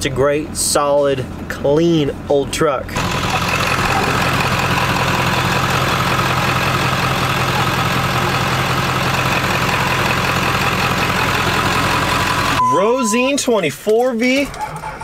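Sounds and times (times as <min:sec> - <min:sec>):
diesel pickup engine idling: 0:02.9 - 0:12.7.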